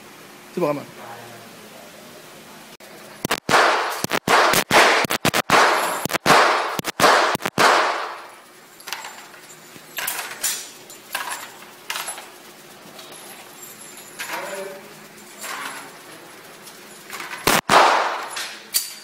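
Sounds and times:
handgun shots echoing indoors: 0:03.5 - 0:08.3, 0:17.4 - 0:19.0.

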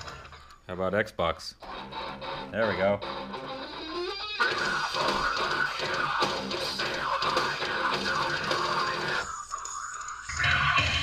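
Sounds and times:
rock music through vibration speaker: 0:01.6 - 0:09.4, 0:10.2 - 0:11.0.

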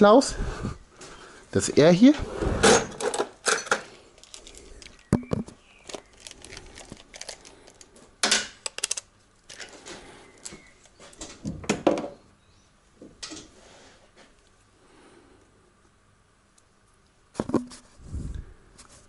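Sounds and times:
handling clicks and rustling: 0:02.8 - 0:11.4.

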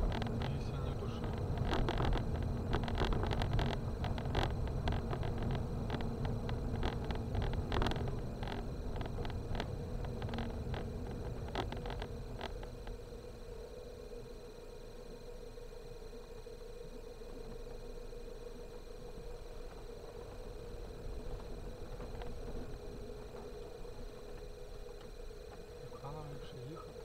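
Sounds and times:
car knocking and rattling: 0:00.0 - 0:13.2, 0:18.8 - 0:27.0
tyres and engine rumbling: 0:00.0 - 0:27.0.

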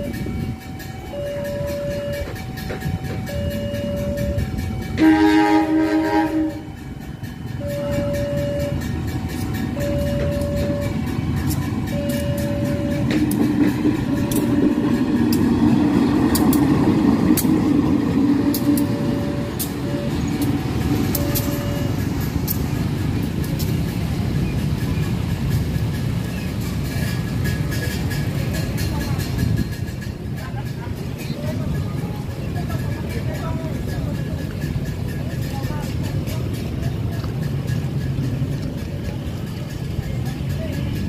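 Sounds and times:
locomotive horn: 0:00.0 - 0:14.9, 0:18.4 - 0:22.1
two-tone crossing alarm: 0:00.0 - 0:22.6
locomotive engine rumble: 0:00.0 - 0:41.0
wheels clicking over rail joints: 0:00.0 - 0:41.0.

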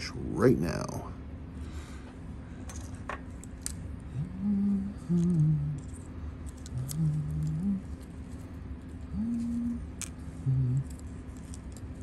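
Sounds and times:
man humming: 0:04.1 - 0:06.0, 0:06.7 - 0:08.0, 0:09.1 - 0:11.0.

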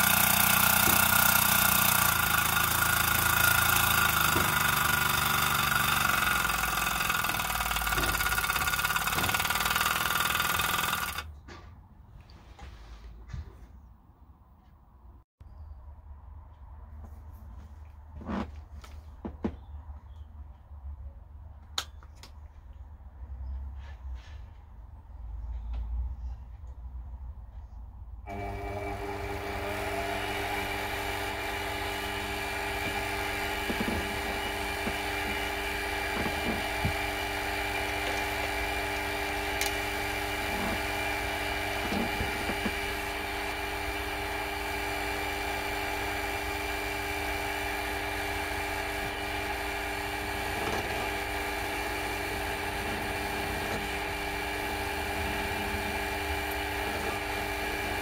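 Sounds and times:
milling machine motor whining: 0:00.0 - 0:11.3, 0:28.3 - 0:58.0.

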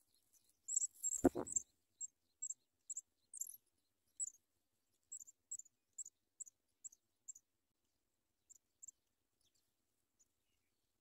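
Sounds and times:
nestlings peeping: 0:00.7 - 0:01.6.

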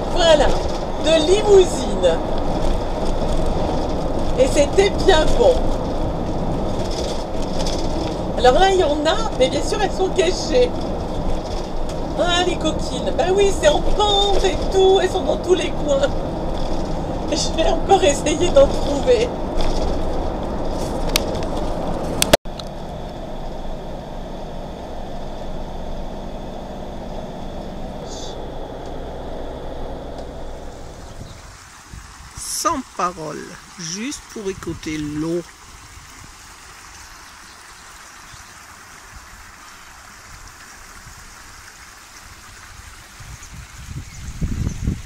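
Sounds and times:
vehicle engine and road rumble: 0:00.0 - 0:45.0
stream flowing over rocks: 0:30.7 - 0:43.3.

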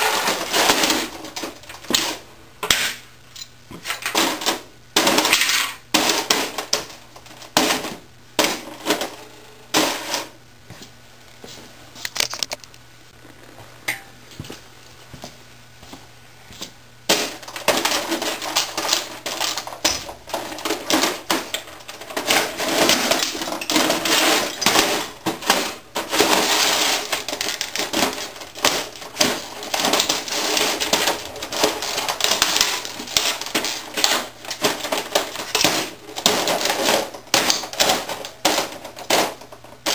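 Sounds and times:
boots stomping: 0:14.3 - 0:17.4.

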